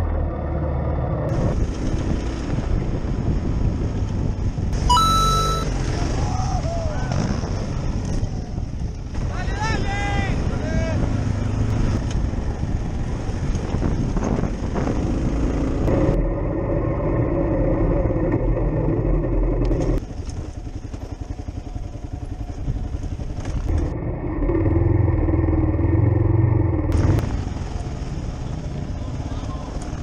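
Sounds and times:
motorcycle engine under throttle: 13.7 - 28.5.

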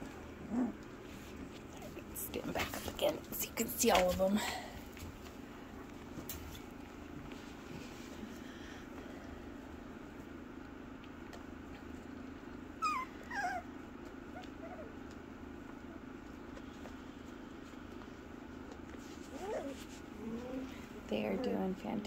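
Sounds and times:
steady low hum: 0.0 - 22.0
puppy whimpering: 0.5 - 0.8, 12.8 - 15.1, 19.2 - 21.6.

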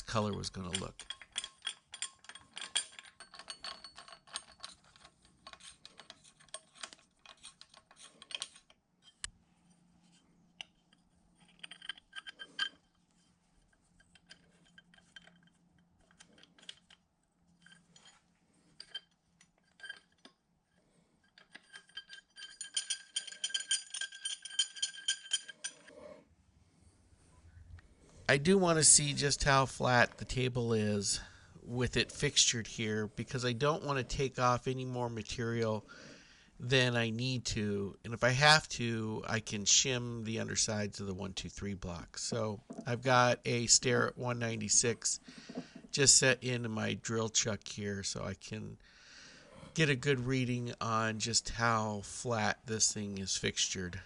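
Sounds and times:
metal clamps and tools clinking: 0.0 - 9.3, 10.0 - 26.0, 42.6 - 43.0, 45.1 - 46.0.

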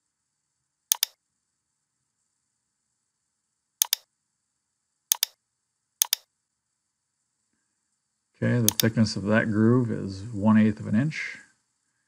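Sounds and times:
computer mouse button clicks: 0.9 - 1.2, 3.8 - 4.1, 5.1 - 5.4, 6.0 - 6.3, 8.7 - 8.9.

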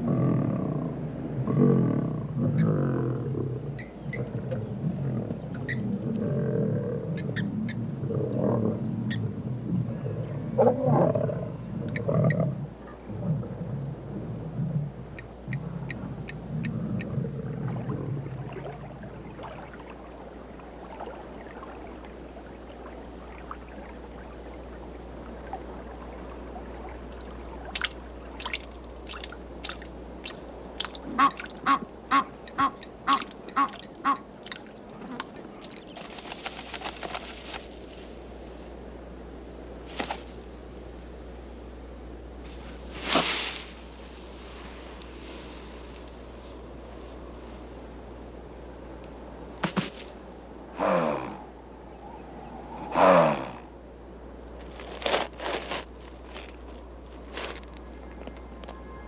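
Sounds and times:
lions growling: 0.0 - 19.6, 50.7 - 53.7
geese honking: 31.1 - 34.3.

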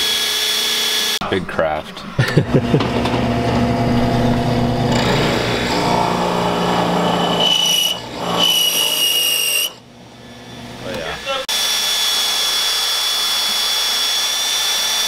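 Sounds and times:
high whine: 1.2 - 7.6
drill press motor running: 2.8 - 9.8.

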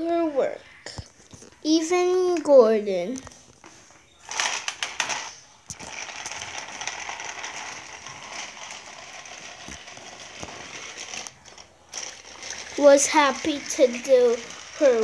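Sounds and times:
toy train motor whirring: 4.2 - 15.0
toy train clicks: 4.3 - 15.0.

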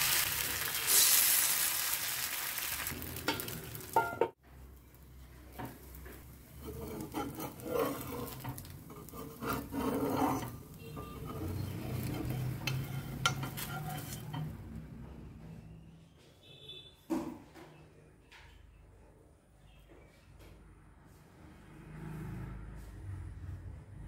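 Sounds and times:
faint sizzling: 0.0 - 14.5
lid and utensils scraping pan: 6.6 - 14.8.

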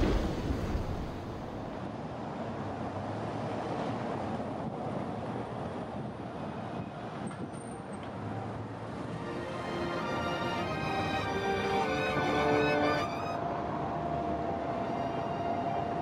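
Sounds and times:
street traffic noise: 0.0 - 16.0.

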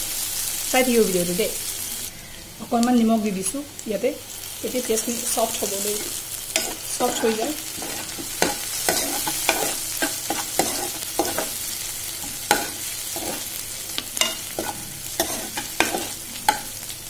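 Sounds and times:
onions sizzling in oil: 0.0 - 17.0
metal spoon scraping a pan: 5.6 - 16.9.

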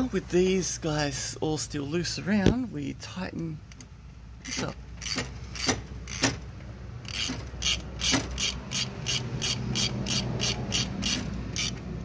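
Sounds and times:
ratchet wrench clicking: 4.4 - 6.4, 7.0 - 11.9.

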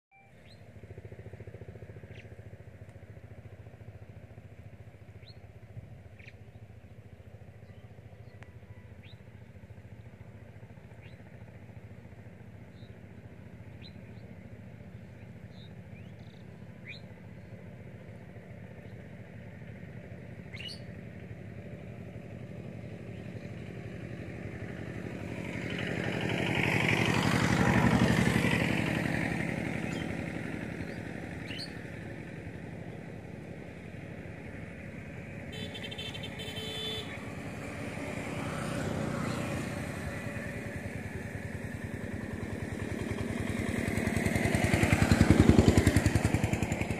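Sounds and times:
small birds chirping: 0.4 - 0.7, 2.0 - 2.4, 5.2 - 10.2, 10.9 - 11.3, 12.6 - 19.1, 20.4 - 21.0, 29.7 - 32.0
motor vehicle passing: 9.0 - 46.9.

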